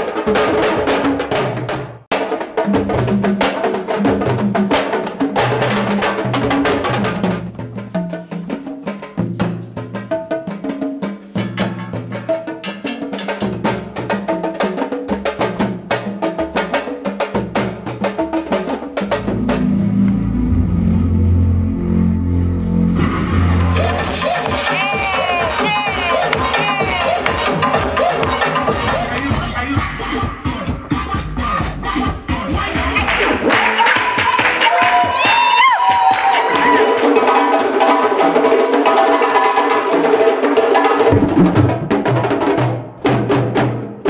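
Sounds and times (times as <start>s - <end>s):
drum-led music with bass: 19.0s - 35.2s.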